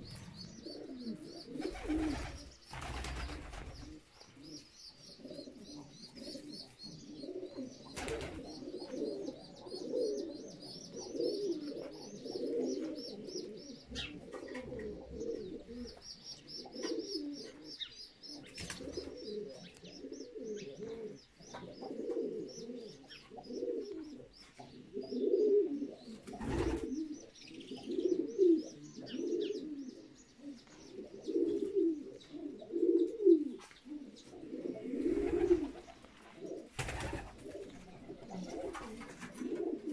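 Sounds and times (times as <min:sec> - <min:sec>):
pigeons cooing: 0:00.0 - 0:39.9.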